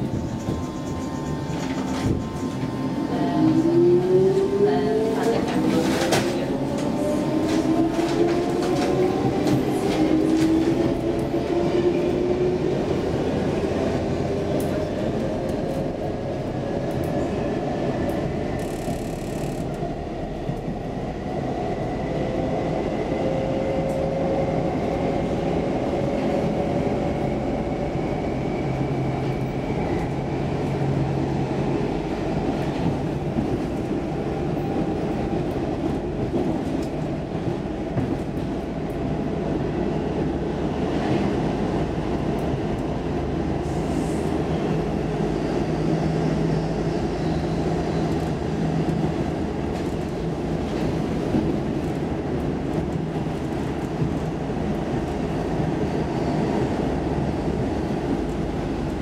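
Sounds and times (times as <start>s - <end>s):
wheels rumbling on rail: 0.0s - 59.0s
train motor whine: 18.6s - 19.8s.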